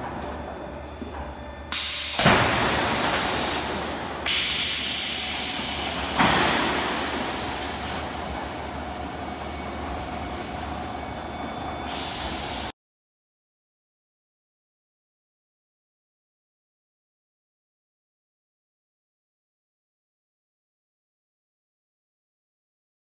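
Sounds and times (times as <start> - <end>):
hissing roll forming machine: 0.0 - 12.7.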